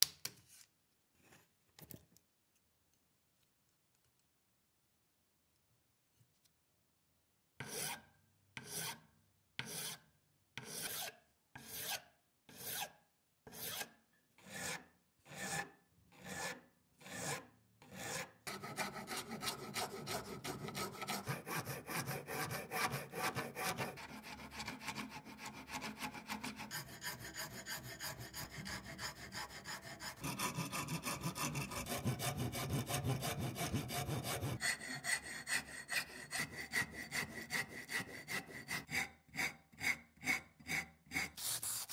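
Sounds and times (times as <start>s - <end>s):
hand file strokes: 13.5s - 41.9s
fast continuous filing: 18.0s - 39.1s.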